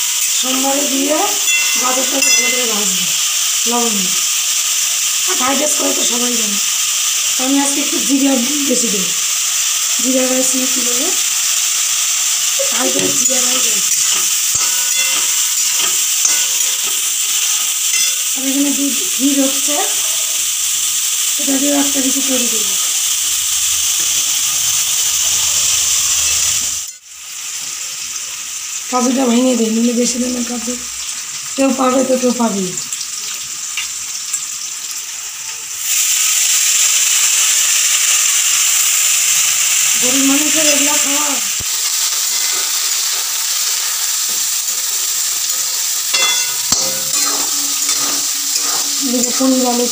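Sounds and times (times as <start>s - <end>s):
vegetables sizzling in hot oil: 0.0s - 49.9s
spatula stirring: 12.7s - 18.2s, 45.5s - 49.8s.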